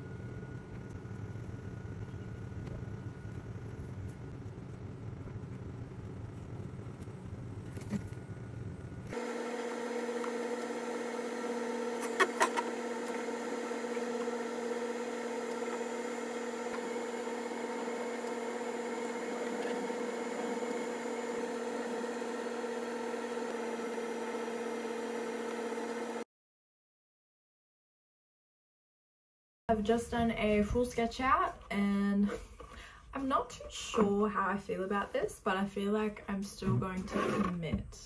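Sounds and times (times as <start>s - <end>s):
machine hum with drone: 0.0s - 26.2s.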